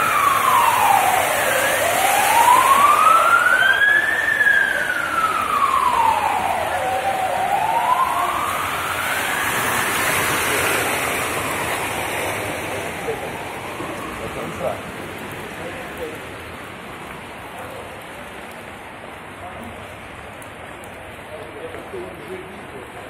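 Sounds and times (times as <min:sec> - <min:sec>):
emergency siren wailing: 0:00.0 - 0:16.5
rain on a flooded street: 0:00.0 - 0:23.0.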